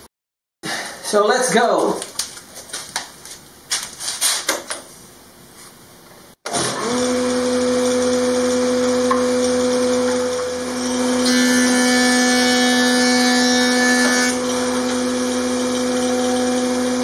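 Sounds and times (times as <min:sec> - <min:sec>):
thickness planer droning: 0:06.5 - 0:17.0.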